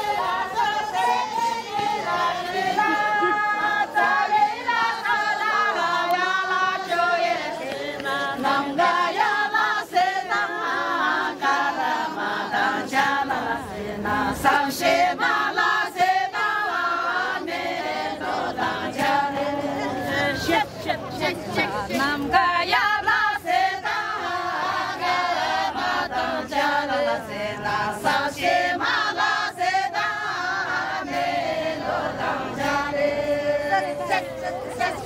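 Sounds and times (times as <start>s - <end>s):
women singing unaccompanied: 0.0s - 35.0s.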